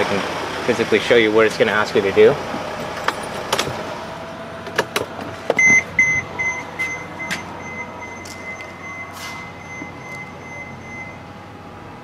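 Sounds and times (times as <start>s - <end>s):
high electronic beep: 5.6s - 11.3s.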